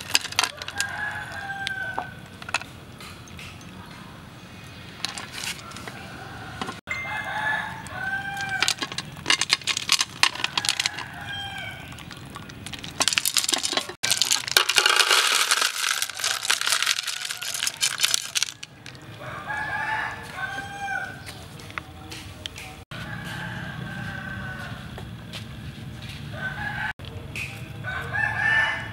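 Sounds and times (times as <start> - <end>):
pot clattering: 0.0 - 1.4, 8.3 - 19.0
rooster crowing: 0.5 - 2.2, 5.6 - 8.8, 10.3 - 11.9, 16.1 - 21.3, 22.9 - 25.0, 26.3 - 26.9, 27.8 - 28.9
chickens calling: 4.8 - 21.6
liquid pouring into bowl: 11.0 - 13.0.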